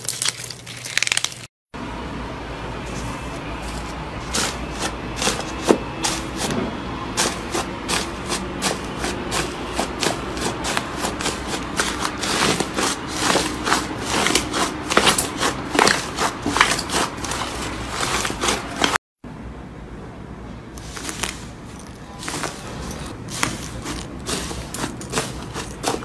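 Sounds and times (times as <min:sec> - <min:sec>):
slime crackling and popping: 0:00.0 - 0:01.5.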